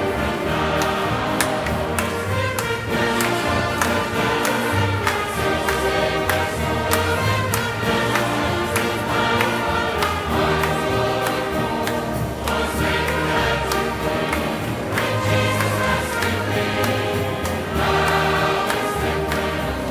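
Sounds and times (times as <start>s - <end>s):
choir singing gospel: 0.0s - 19.9s
instrumental accompaniment with bass: 0.0s - 19.9s.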